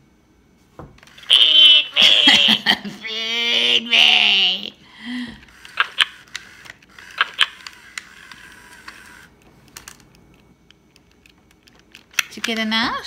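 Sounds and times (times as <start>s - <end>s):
toy parrot clicky crunching: 1.2s - 1.9s, 5.5s - 10.0s.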